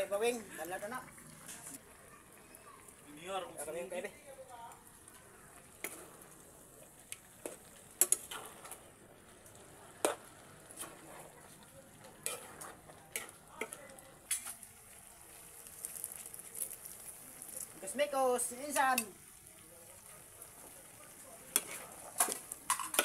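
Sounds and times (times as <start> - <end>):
meat sizzling in wok: 0.0 - 23.0
spatula scraping pan: 10.0 - 14.5, 21.5 - 23.0.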